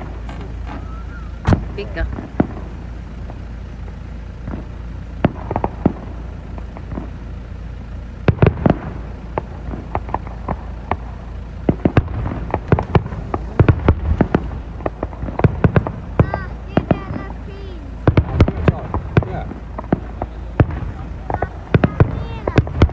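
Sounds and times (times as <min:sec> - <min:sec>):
fireworks bangs and crackling: 0:00.0 - 0:22.9.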